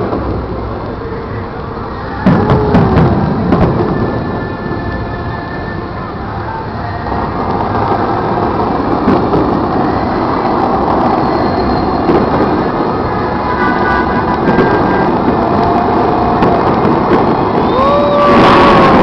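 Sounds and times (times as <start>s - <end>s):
fireworks pops: 0.0s - 19.0s
fountain water jets rushing: 0.0s - 19.0s.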